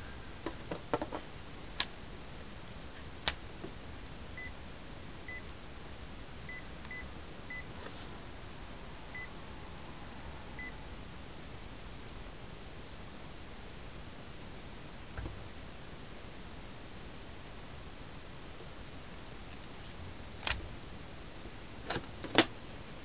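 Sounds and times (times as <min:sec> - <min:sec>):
high key-press beeps: 0:06.5 - 0:07.7.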